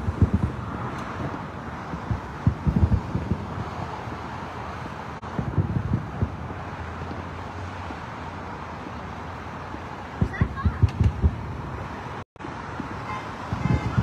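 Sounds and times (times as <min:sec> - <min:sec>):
distant fireworks booming: 0:00.0 - 0:08.0, 0:09.7 - 0:11.8
highway traffic: 0:00.0 - 0:14.0.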